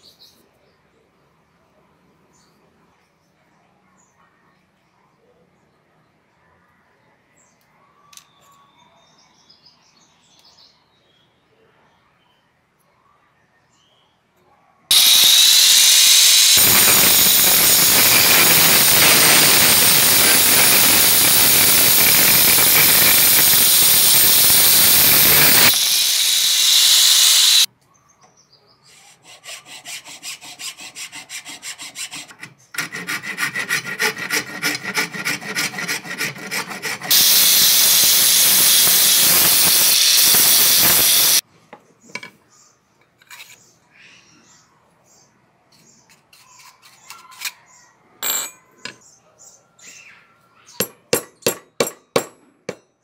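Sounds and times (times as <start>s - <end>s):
small power tool on wood: 14.9s - 27.7s, 34.0s - 41.4s
hand file rasping over wood: 29.0s - 37.4s.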